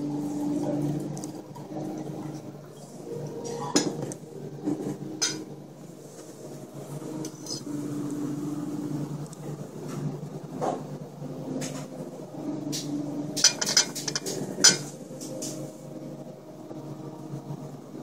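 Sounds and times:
low room hum: 0:00.0 - 0:18.0
tableware clinking: 0:05.2 - 0:05.5, 0:13.4 - 0:14.9.

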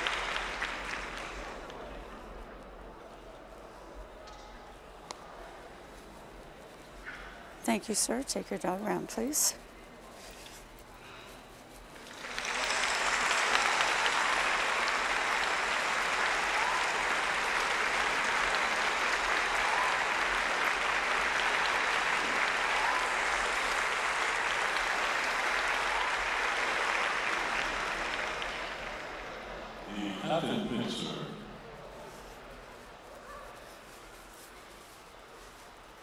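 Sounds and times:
applause: 0:00.0 - 0:02.0, 0:12.0 - 0:29.7.

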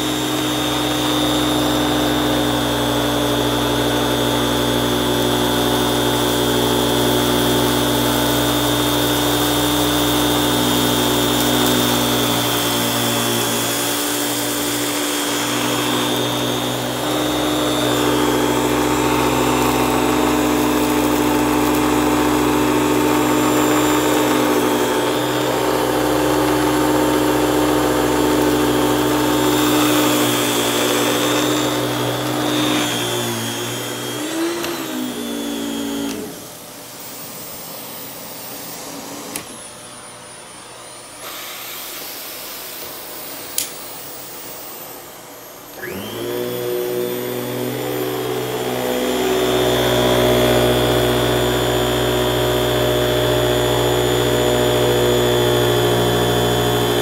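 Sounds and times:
vacuum cleaner running on carpet: 0:00.0 - 0:57.0
clicks: 0:34.4 - 0:36.4.

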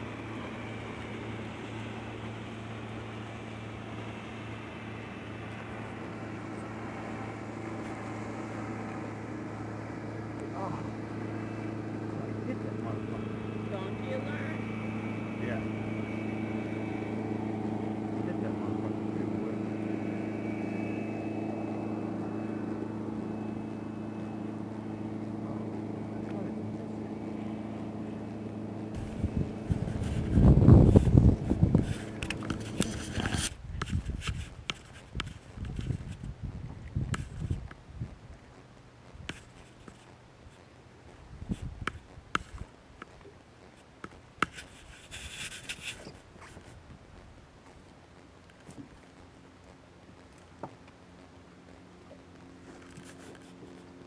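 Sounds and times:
boat motor humming: 0:00.0 - 0:54.0
rasping rustle: 0:28.9 - 0:36.4, 0:41.4 - 0:50.6, 0:52.4 - 0:54.0.

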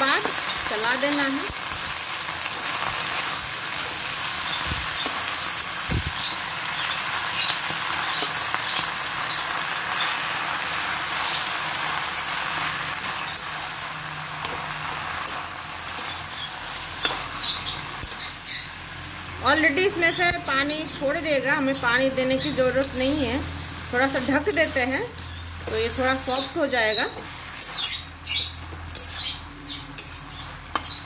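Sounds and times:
vegetables sizzling in oil: 0:00.0 - 0:31.0
spatula scraping pan: 0:22.2 - 0:31.0.

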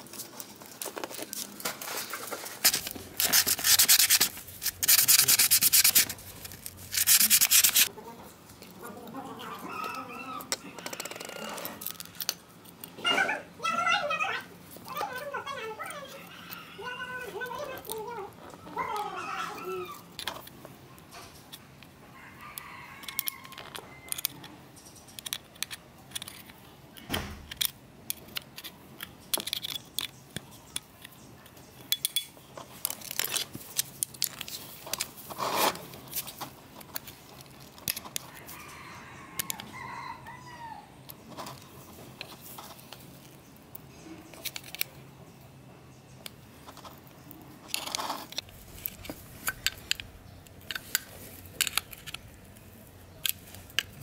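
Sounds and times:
screwdriver scraping metal housing: 0:02.7 - 0:07.9
rooster crowing: 0:09.4 - 0:12.2, 0:15.9 - 0:17.4, 0:22.1 - 0:24.5, 0:38.3 - 0:41.0.

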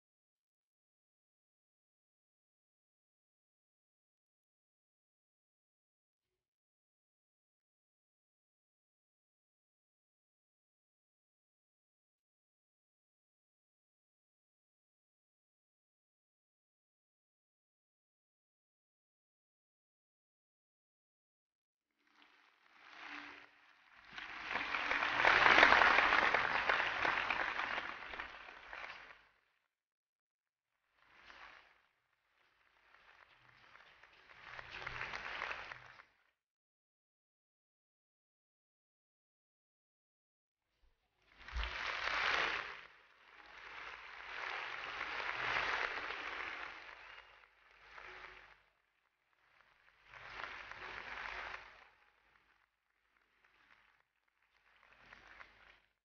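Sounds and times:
crowd applause: 0:22.2 - 0:29.2, 0:31.0 - 0:31.8, 0:32.4 - 0:36.2, 0:41.3 - 0:55.9.

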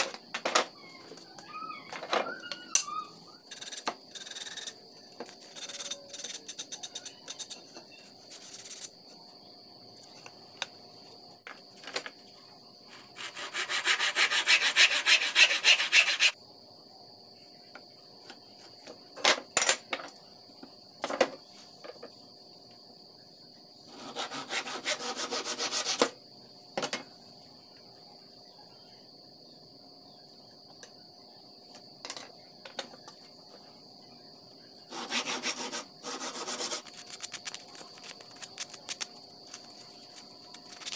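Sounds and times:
insect trill: 0:00.0 - 0:40.9
sandpaper rubbing on wood: 0:13.2 - 0:16.4, 0:24.0 - 0:26.0, 0:34.9 - 0:37.0.

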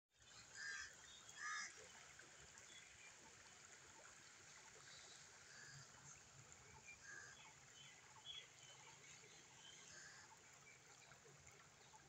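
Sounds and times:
stream flowing over stones: 0:00.2 - 0:12.0.

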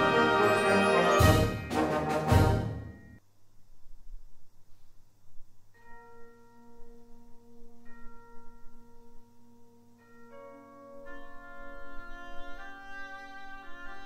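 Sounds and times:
wind band held notes: 0:00.0 - 0:03.0, 0:11.0 - 0:14.0.

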